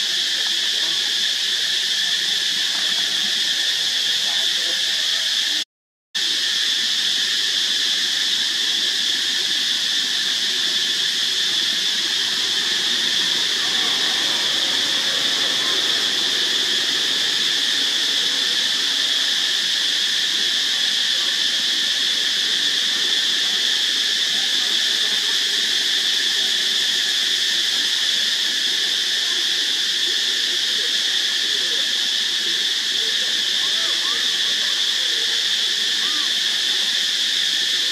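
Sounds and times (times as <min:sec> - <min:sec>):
insect chorus drone: 0:00.0 - 0:05.6, 0:06.2 - 0:37.9.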